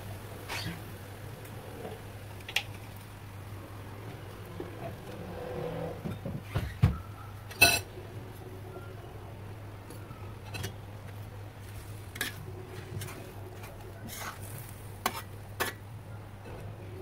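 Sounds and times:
low steady hum: 0.0s - 17.0s
metal spatula scraping wok: 11.7s - 15.8s.

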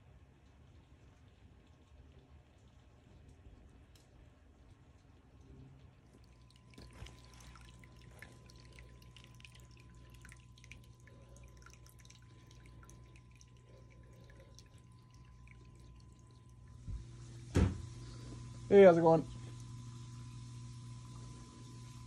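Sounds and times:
water trickling and dripping: 0.0s - 22.0s
steady low hum: 5.2s - 22.0s.

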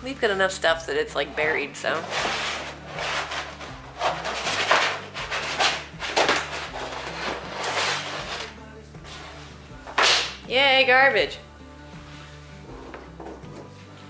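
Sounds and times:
shelf liner rustling and scraping: 1.8s - 10.4s.

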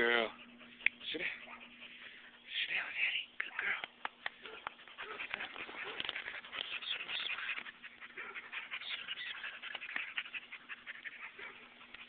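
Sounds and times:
dog panting and snuffling: 0.0s - 3.0s, 4.2s - 12.0s
rustling and handling noise: 3.9s - 7.9s.

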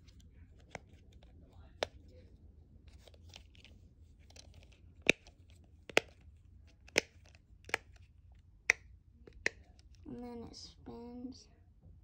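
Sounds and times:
faint handling rustle: 0.0s - 7.4s.

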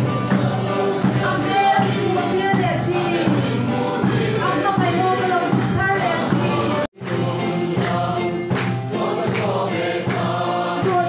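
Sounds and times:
congregation singing a hymn: 0.0s - 11.0s.

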